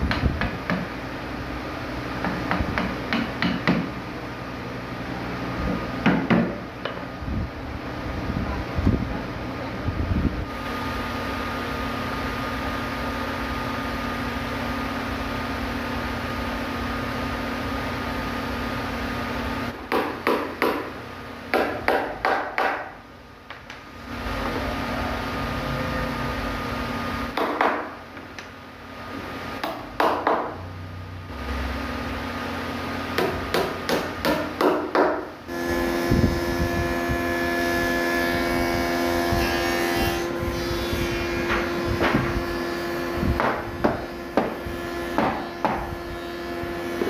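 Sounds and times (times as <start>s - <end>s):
hammer striking wood: 0.0s - 0.9s, 2.2s - 4.0s, 6.0s - 7.0s, 19.8s - 23.8s, 27.3s - 28.5s, 29.6s - 30.6s, 33.2s - 35.3s, 43.4s - 46.0s
steady hum: 0.0s - 47.0s.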